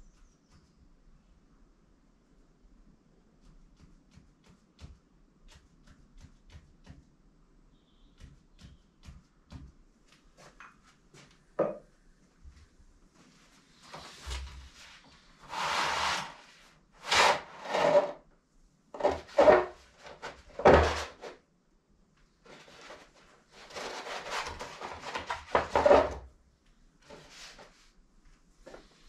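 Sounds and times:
paper rustling and scraping: 0:13.7 - 0:18.2, 0:19.0 - 0:21.4, 0:22.5 - 0:26.2.

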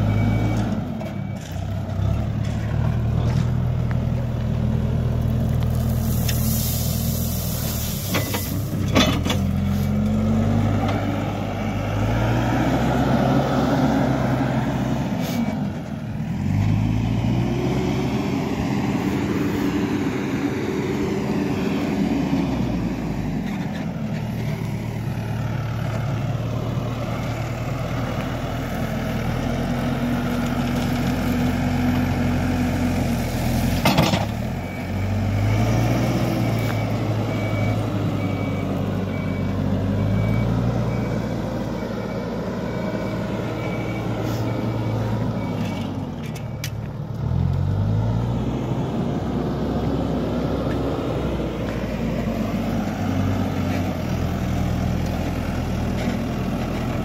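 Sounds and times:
diesel engine revving: 0:00.0 - 0:57.0
short hiss: 0:05.9 - 0:08.7.

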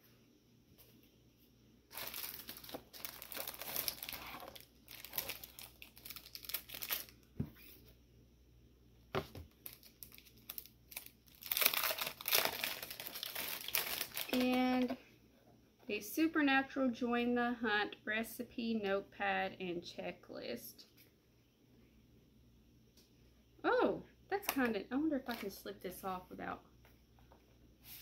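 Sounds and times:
packaging crinkling and tearing: 0:01.9 - 0:07.3, 0:09.5 - 0:14.9.

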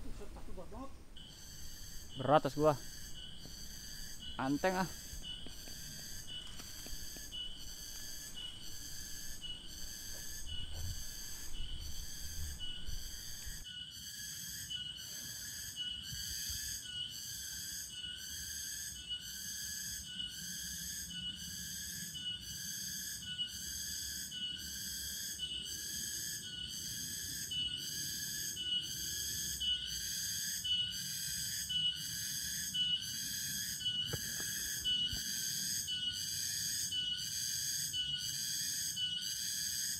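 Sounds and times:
insect pulsing song: 0:00.0 - 0:39.9.

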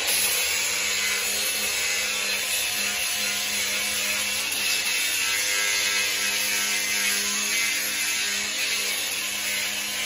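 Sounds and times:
angle grinder motor hum: 0:00.0 - 0:10.0.

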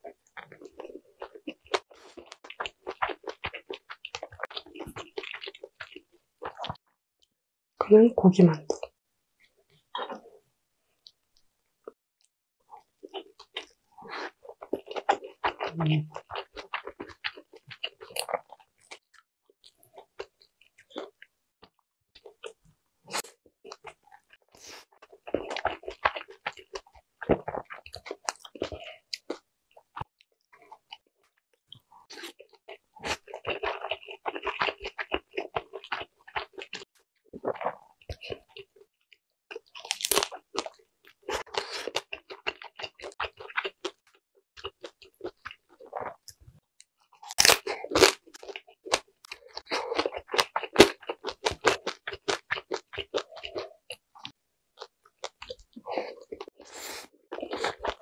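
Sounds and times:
chewing dumplings: 0:00.0 - 0:07.0, 0:08.7 - 0:11.9, 0:12.6 - 0:58.0
crisp bite: 0:47.2 - 0:54.0.

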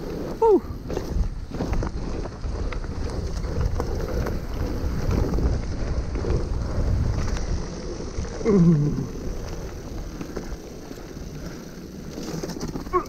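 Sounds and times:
wind buffeting microphone: 0:00.0 - 0:11.9
bike rattling: 0:00.0 - 0:13.0
tyres rolling over dirt trail: 0:00.0 - 0:13.0
person calling out: 0:00.4 - 0:00.7.

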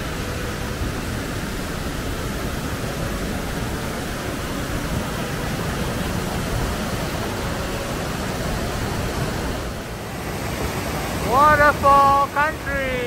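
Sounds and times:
waterfall rushing over boulders: 0:00.0 - 0:13.0.

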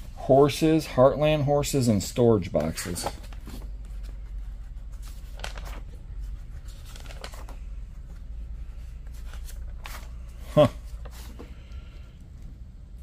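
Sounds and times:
low steady hum: 0:00.0 - 0:13.0
notebook pages rustling: 0:02.4 - 0:11.9.

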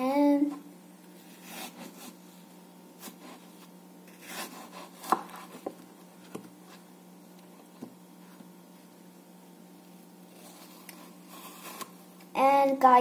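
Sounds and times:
knife cutting apple: 0:01.2 - 0:02.2, 0:03.0 - 0:06.5, 0:10.3 - 0:12.0.

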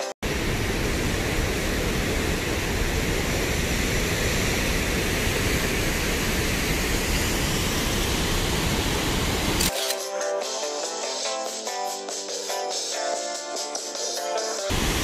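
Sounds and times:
waterfall rushing: 0:14.7 - 0:15.0.

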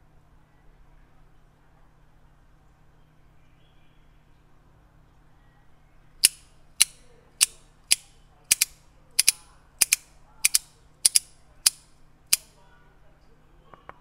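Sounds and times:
sharp metallic clicks: 0:06.2 - 0:12.5.

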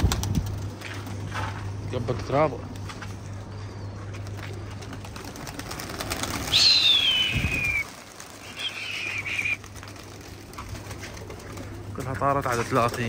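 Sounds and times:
pigeon wing flaps: 0:00.0 - 0:01.2, 0:04.2 - 0:13.0.

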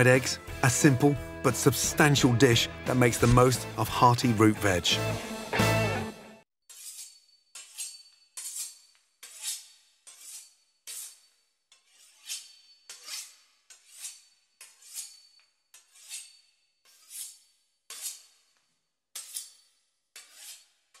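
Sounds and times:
knife sawing through crisp pastry: 0:06.6 - 0:21.0.

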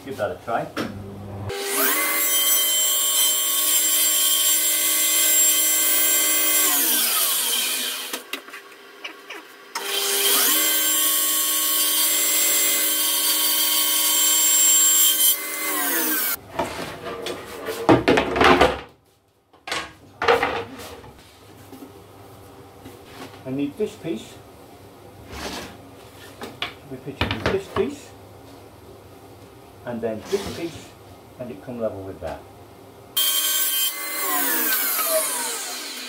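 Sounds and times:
table saw running: 0:00.9 - 0:08.3, 0:09.6 - 0:16.4, 0:33.2 - 0:36.0.

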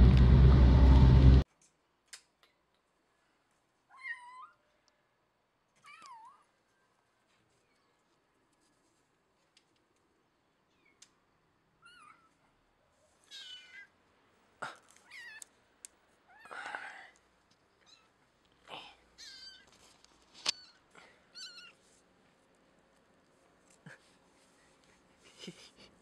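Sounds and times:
kitten meowing: 0:13.3 - 0:13.9, 0:19.2 - 0:19.7, 0:20.5 - 0:21.8.

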